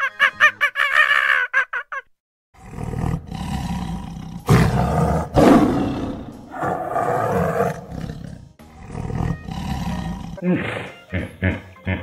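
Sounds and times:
tiger roaring: 0:02.6 - 0:10.8.

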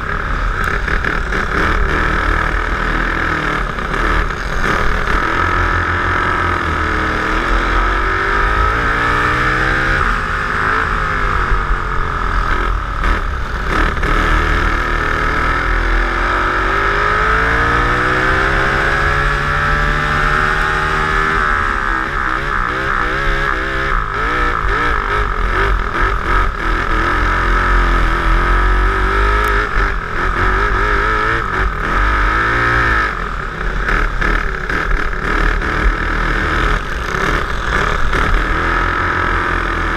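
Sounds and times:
kart engines revving: 0:00.0 - 0:39.9.

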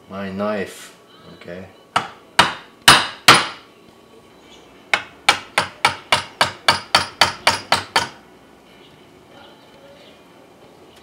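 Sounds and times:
chisel struck into wood: 0:02.0 - 0:03.6, 0:04.9 - 0:08.2.

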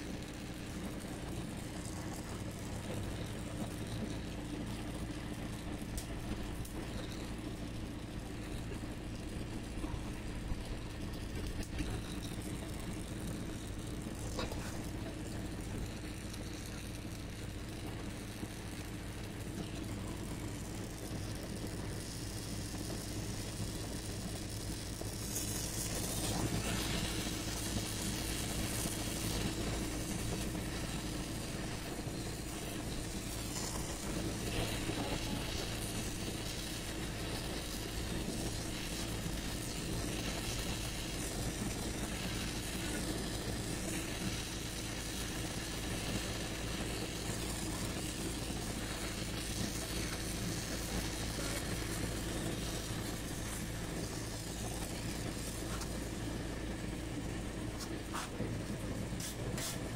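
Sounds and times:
low mechanical hum: 0:00.0 - 0:59.9
welding torch flame hissing: 0:00.0 - 0:59.9.

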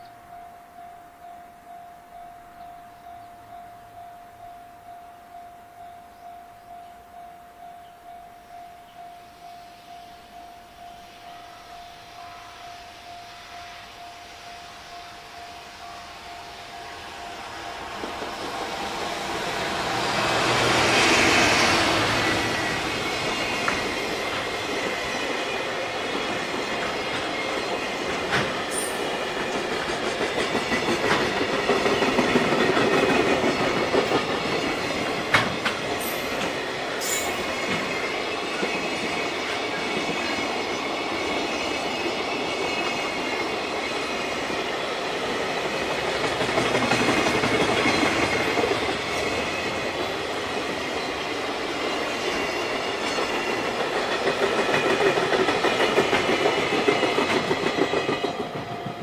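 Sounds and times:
rail joint clicks: 0:14.9 - 0:59.0.

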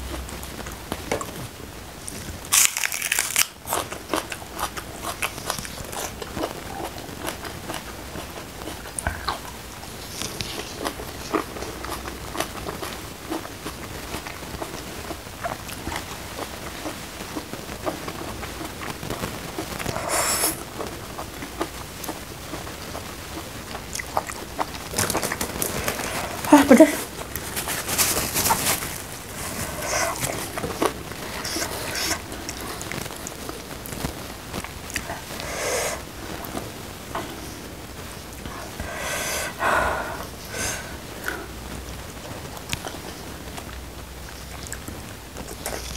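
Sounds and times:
person chewing food: 0:02.1 - 0:37.7
sharp breaths hissed through mouth: 0:19.9 - 0:20.6, 0:38.7 - 0:41.5.

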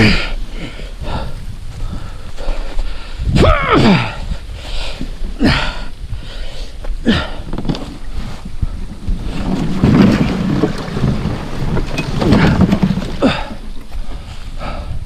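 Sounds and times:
canoe hull scraping over dirt: 0:06.2 - 0:14.8.

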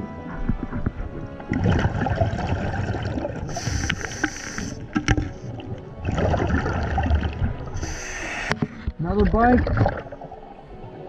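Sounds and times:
bubbling exhale underwater: 0:01.5 - 0:08.5
hissing inhale through regulator: 0:03.4 - 0:05.6, 0:07.7 - 0:08.8.

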